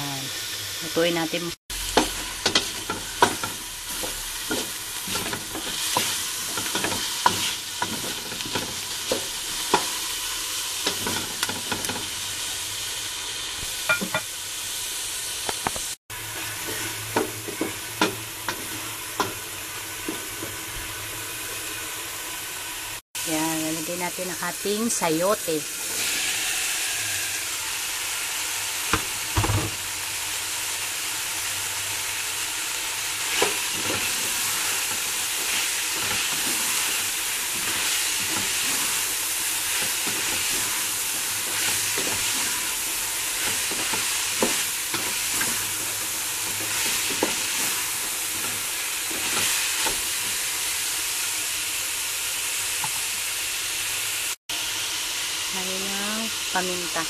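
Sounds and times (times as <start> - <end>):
food sizzling in a pan: 0.0 - 57.0
spatula scraping and knocking pan: 1.9 - 10.1, 16.3 - 19.4, 41.4 - 50.4.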